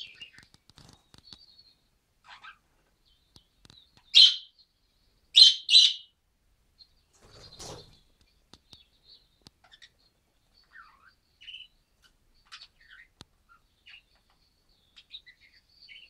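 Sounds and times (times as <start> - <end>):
budgerigars chirping: 2.2 - 2.6, 4.0 - 4.6, 5.4 - 6.1, 8.7 - 16.0.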